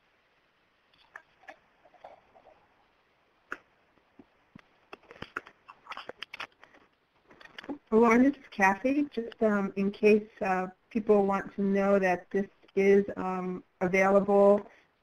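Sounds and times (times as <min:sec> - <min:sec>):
faint clicks and taps: 0:03.5 - 0:07.9.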